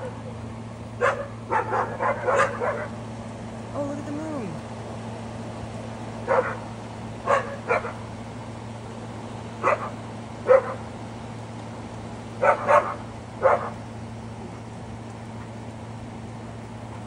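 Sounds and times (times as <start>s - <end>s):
steady low hum: 0.0s - 17.0s
dogs barking: 1.0s - 3.0s, 6.2s - 8.1s, 9.6s - 11.0s, 12.4s - 13.8s.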